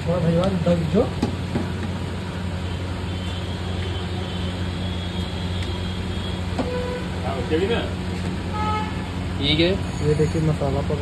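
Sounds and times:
noisy background hum: 0.0s - 11.0s.

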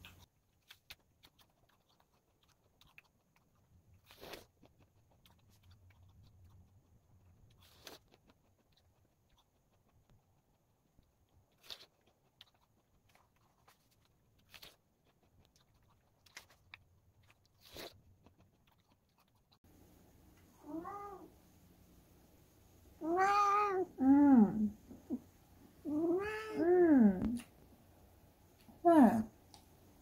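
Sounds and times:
crisp bites into an apple: 4.0s - 4.5s, 7.6s - 8.2s, 17.4s - 18.0s.

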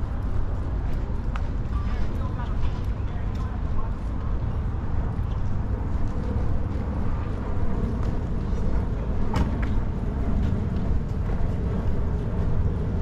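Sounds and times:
road traffic rumble: 0.0s - 13.0s.

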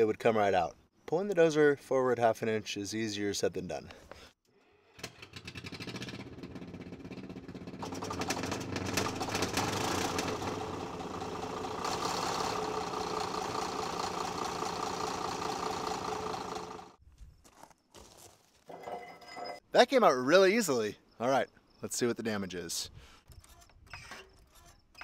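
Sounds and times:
bulldozer diesel engine running: 6.3s - 17.0s.

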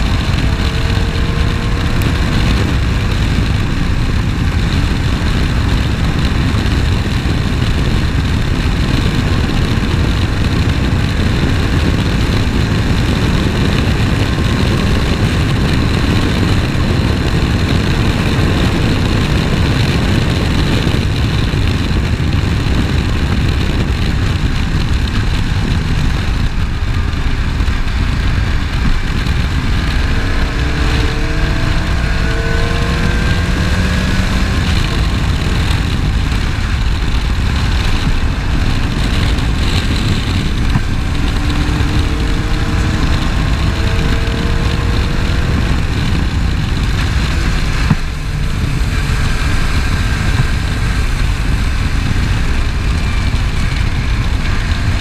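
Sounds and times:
race car engine: 0.0s - 55.0s
wind and road noise: 0.0s - 55.0s.

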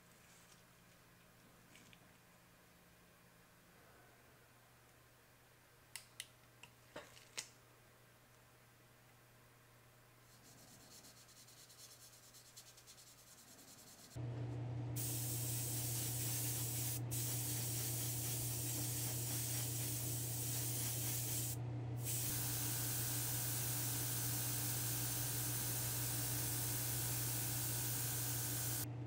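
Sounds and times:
low steady hum: 14.2s - 29.0s
airbrush hissing: 15.0s - 28.9s.

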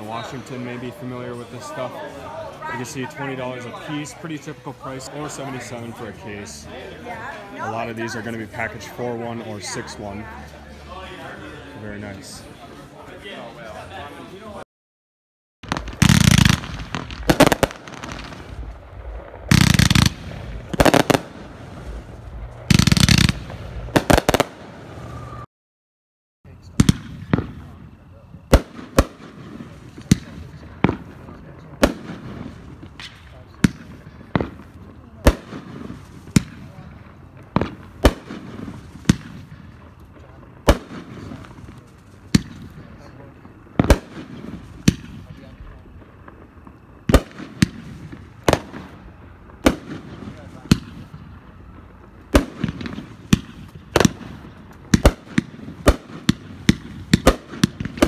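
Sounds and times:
firework cracks: 15.6s - 25.4s, 26.6s - 58.0s
firework booms: 15.6s - 25.5s, 26.5s - 58.0s.

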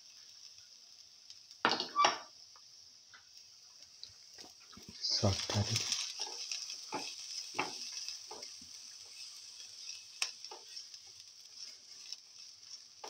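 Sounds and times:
vegetables sizzling in oil: 0.0s - 13.0s
spatula scraping a pan: 5.5s - 13.0s.

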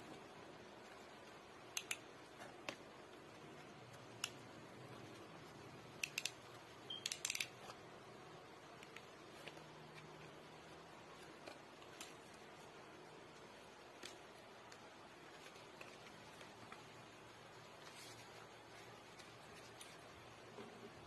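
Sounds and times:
plastic ratchet clicks: 6.0s - 7.6s.

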